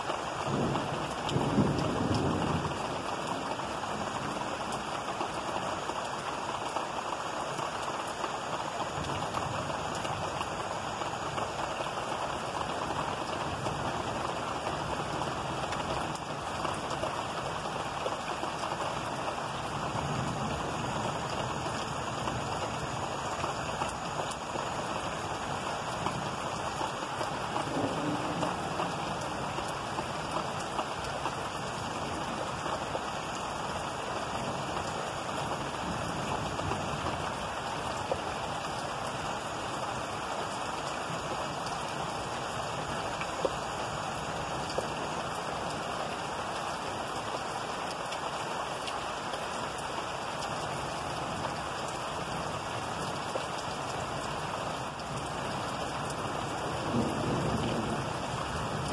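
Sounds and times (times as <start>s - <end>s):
steady rain hiss: 0.0s - 58.9s
raindrop ticks: 4.0s - 37.2s, 43.2s - 52.4s.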